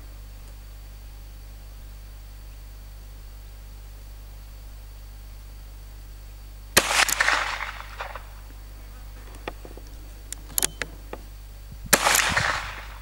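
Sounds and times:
gunshot with echo: 6.8s - 8.4s, 11.9s - 13.0s.

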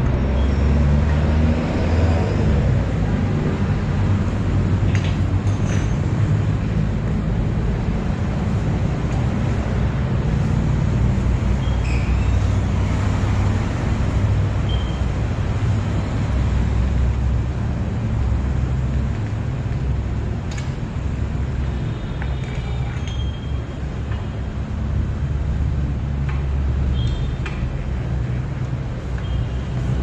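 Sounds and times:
motor vehicle rumble: 0.0s - 30.0s
high squeaks: 11.6s - 12.5s.

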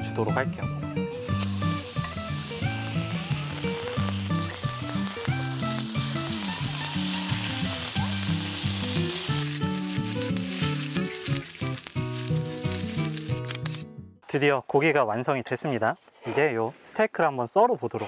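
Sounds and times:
meat sizzling on griddle: 1.1s - 13.5s
quick pops and crackles: 8.4s - 13.8s.

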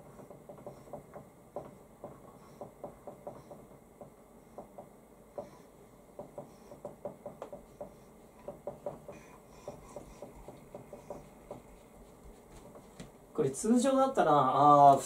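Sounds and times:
marker writing on whiteboard: 6.2s - 13.1s.

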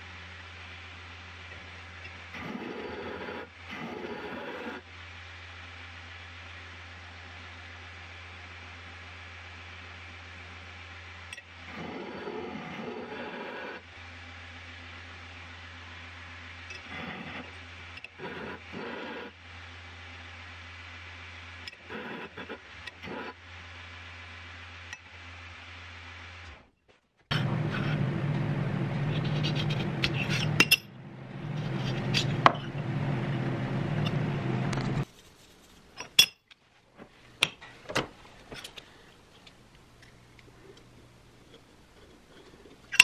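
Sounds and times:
loud steady machine noise: 27.3s - 35.0s.

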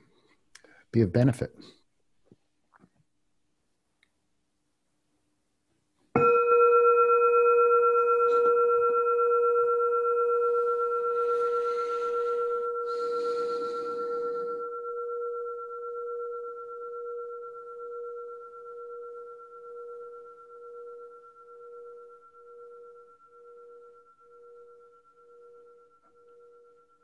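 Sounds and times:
meditation bell ringing: 6.2s - 27.0s.

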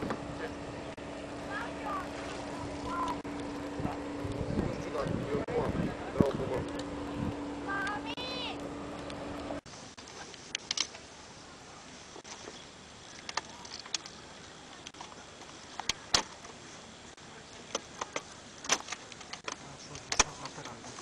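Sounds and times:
kayak frame parts clicking: 9.0s - 11.1s, 12.2s - 16.6s, 17.5s - 21.0s
steady hiss: 9.6s - 21.0s.

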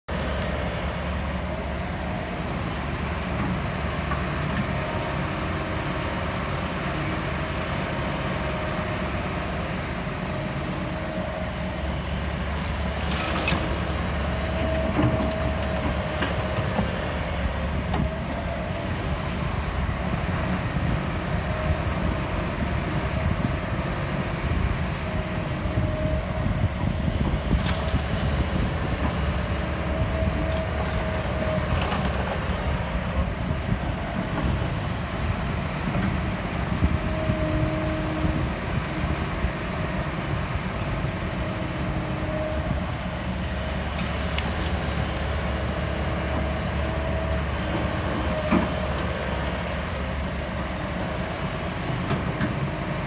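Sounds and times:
excavator diesel engine running: 0.1s - 53.0s.

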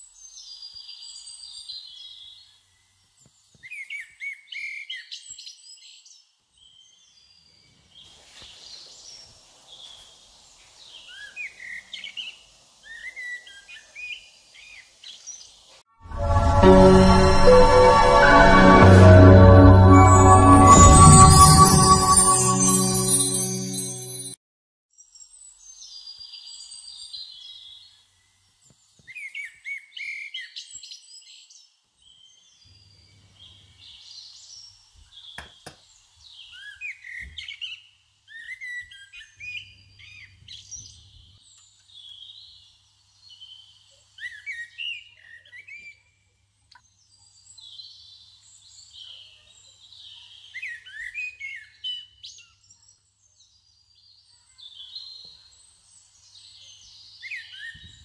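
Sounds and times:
small birds chirping: 0.0s - 15.8s, 32.1s - 58.0s.

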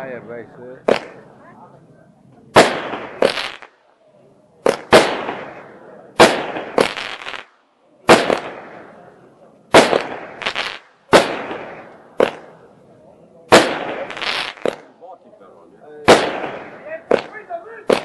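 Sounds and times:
firework shells bursting: 0.8s - 1.2s, 2.6s - 3.9s, 4.6s - 9.0s, 9.7s - 12.6s, 13.5s - 14.9s, 16.0s - 18.0s.

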